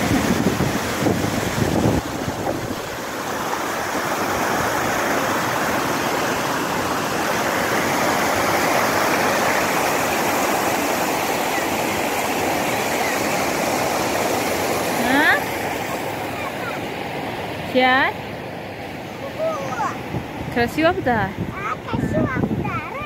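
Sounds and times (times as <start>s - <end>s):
water rushing over a ledge: 0.0s - 23.0s.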